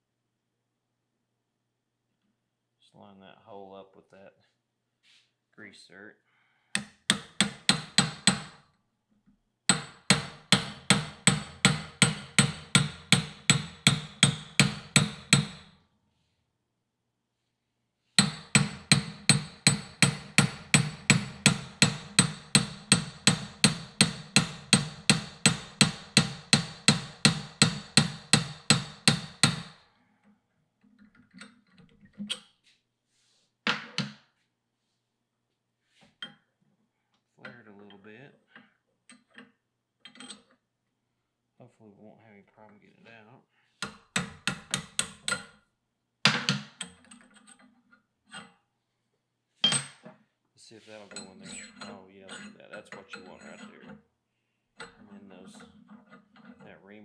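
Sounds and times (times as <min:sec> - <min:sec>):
hammer blows on steel: 0:18.2 - 0:29.8.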